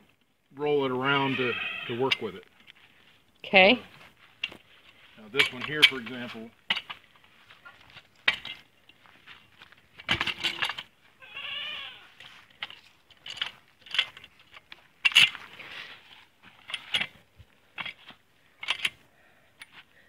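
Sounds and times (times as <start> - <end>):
steel log tool clanking: 10.0 - 10.9, 12.5 - 15.4, 18.6 - 19.0.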